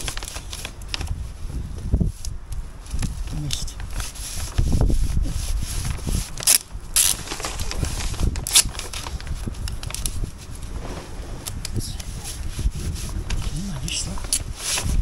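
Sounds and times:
plastic sheet rustling and crinkling: 0:00.0 - 0:15.0
low rumble: 0:10.3 - 0:13.9.

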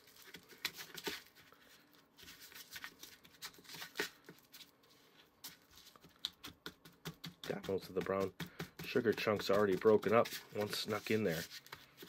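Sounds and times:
spatula scraping plastic bowl: 0:05.9 - 0:12.0.

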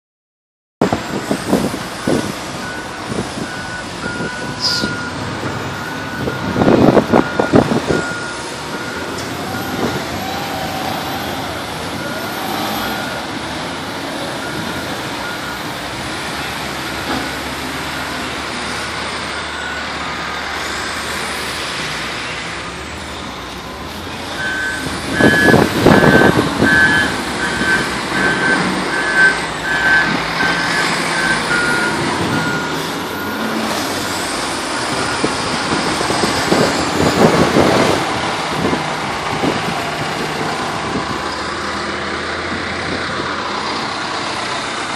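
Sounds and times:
diesel engines running: 0:00.8 - 0:44.9
reversing alarms beeping: 0:02.0 - 0:13.2, 0:14.2 - 0:15.8, 0:19.3 - 0:20.7, 0:23.6 - 0:36.6.

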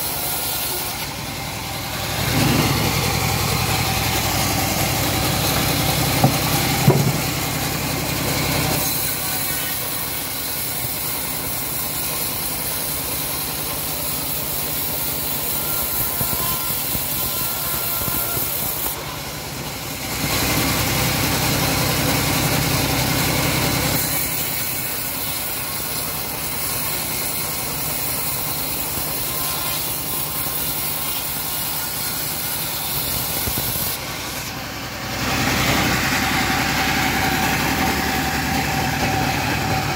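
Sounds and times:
band sawmill cutting log: 0:00.0 - 0:39.9.

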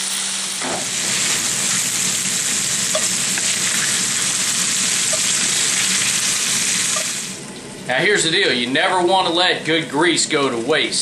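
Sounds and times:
meatballs sizzling in grease: 0:00.8 - 0:07.7.

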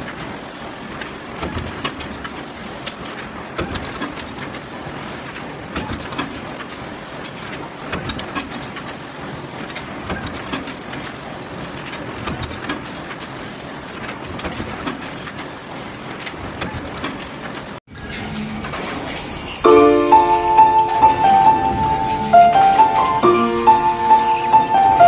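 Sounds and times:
hiss: 0:00.2 - 0:01.1, 0:04.5 - 0:05.3.

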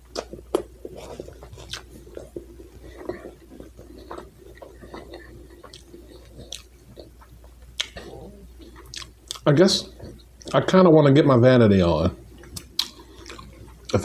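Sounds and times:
person chewing food: 0:00.0 - 0:10.6, 0:12.3 - 0:14.0
mouth clicks and smacks: 0:00.1 - 0:10.6, 0:12.4 - 0:14.0.

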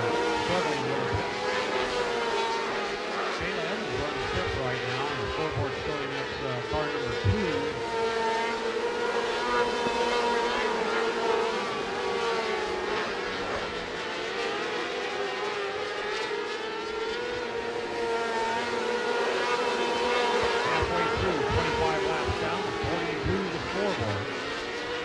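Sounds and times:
racing engines whining: 0:00.0 - 0:25.0.

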